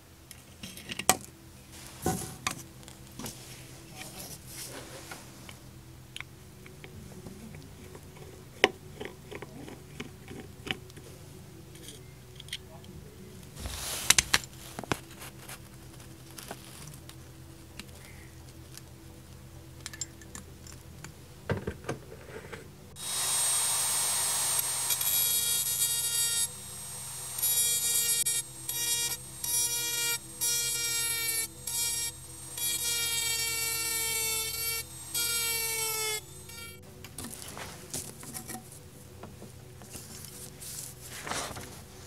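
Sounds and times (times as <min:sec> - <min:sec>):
rotary tool sanding whine: 0:23.0 - 0:38.8.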